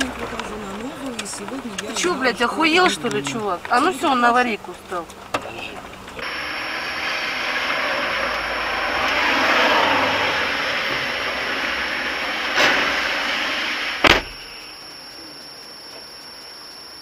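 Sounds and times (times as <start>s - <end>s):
traffic and engine noise: 0.0s - 14.6s
sharp bang: 9.6s - 14.7s.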